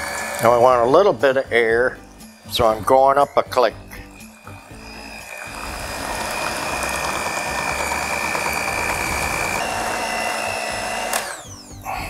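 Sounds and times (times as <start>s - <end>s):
electric hand mixer whirring: 0.0s - 12.0s.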